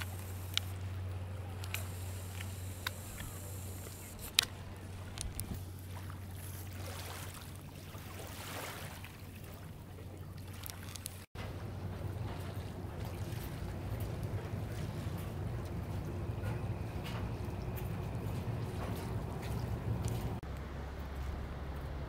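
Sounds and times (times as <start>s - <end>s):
water lapping over stones: 0.0s - 20.5s
low hum: 11.0s - 22.0s.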